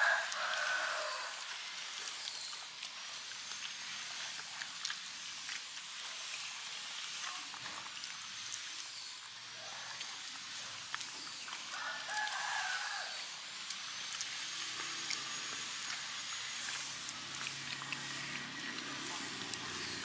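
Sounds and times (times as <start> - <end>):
rooster crowing: 0.0 - 1.4, 11.7 - 13.3.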